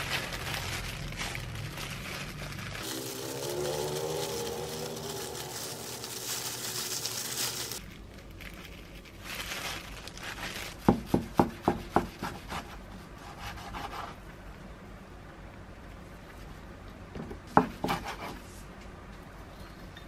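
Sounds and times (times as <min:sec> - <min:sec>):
plastic film crinkling: 0:00.0 - 0:11.7.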